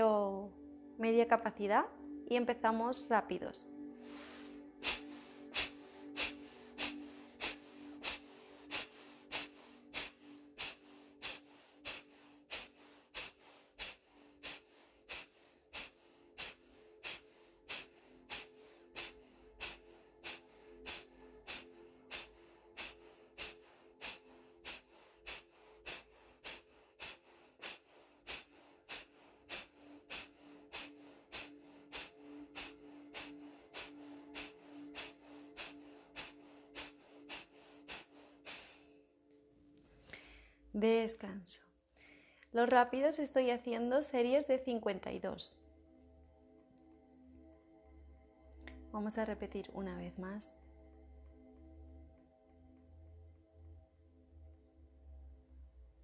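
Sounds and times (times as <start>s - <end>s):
soft background music: 0.0s - 56.0s
forceful nasal exhalations: 3.9s - 38.9s.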